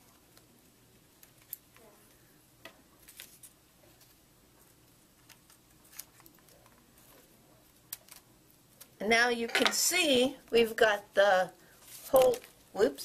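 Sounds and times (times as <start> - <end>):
scissors snipping paper: 7.9 - 9.0.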